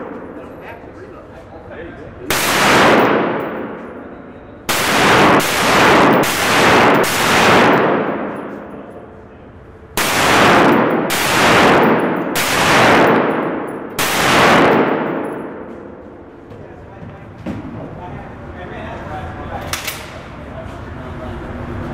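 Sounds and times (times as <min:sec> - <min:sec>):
rifle shots echoing: 0:02.3 - 0:09.1, 0:10.0 - 0:16.0.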